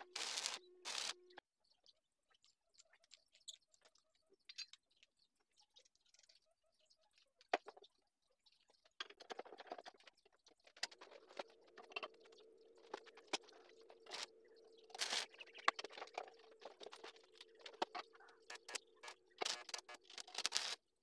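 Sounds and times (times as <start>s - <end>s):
welding arc crackling: 0.0s - 1.2s, 14.9s - 15.8s.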